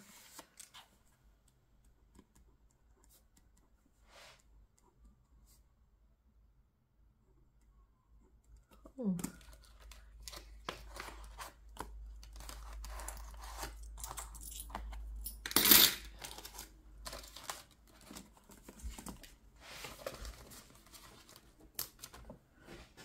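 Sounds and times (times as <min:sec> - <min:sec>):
paper rustling: 0:00.0 - 0:01.0, 0:16.2 - 0:23.0.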